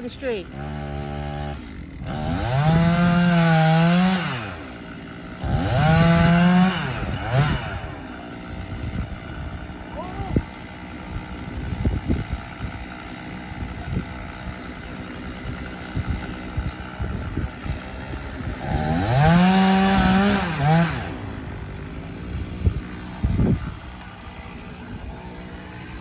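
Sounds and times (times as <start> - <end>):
chainsaw revving: 0.0 - 26.0.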